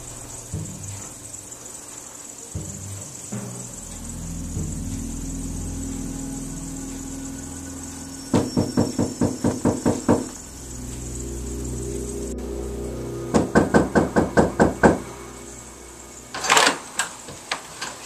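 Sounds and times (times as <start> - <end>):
faint steady hum: 0.0 - 18.0
rapid knocking on door: 8.3 - 10.4, 13.4 - 15.0.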